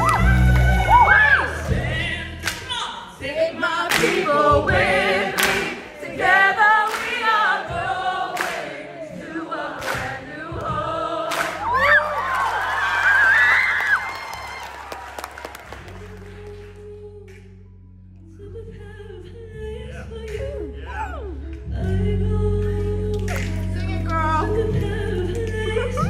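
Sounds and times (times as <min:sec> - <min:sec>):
woman singing into a microphone: 0:18.2 - 0:26.0.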